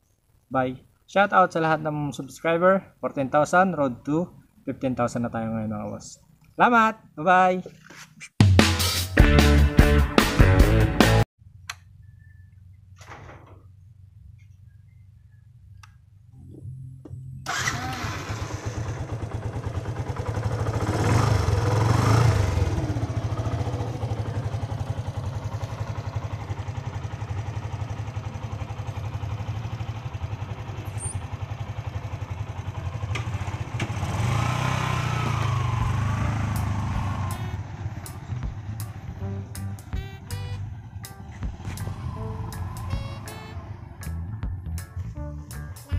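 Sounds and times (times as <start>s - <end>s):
motorcycle engine starting and revving: 16.3s - 45.5s.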